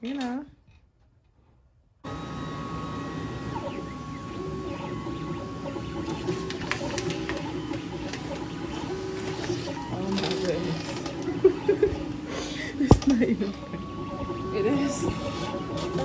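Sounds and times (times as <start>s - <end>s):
machine mechanical whir: 2.0s - 16.0s
machine clicks: 5.7s - 12.1s.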